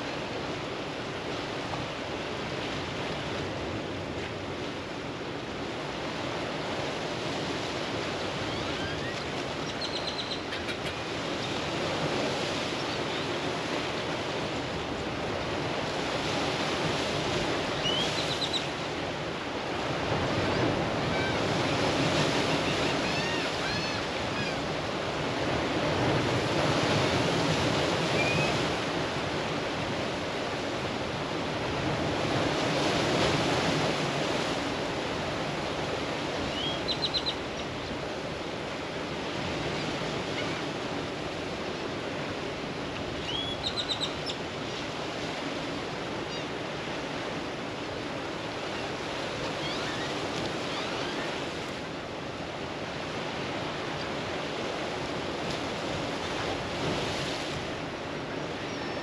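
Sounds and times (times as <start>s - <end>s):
bird chirping: 9.7s - 10.7s.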